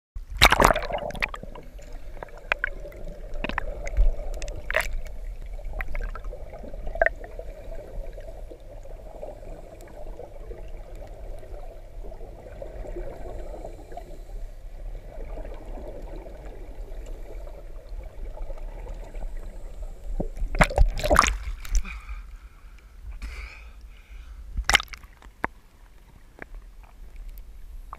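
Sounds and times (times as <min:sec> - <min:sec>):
underwater bubbles gurgling: 0:00.2 - 0:21.8
sharp underwater clicks and knocks: 0:03.4 - 0:05.1, 0:24.6 - 0:27.4.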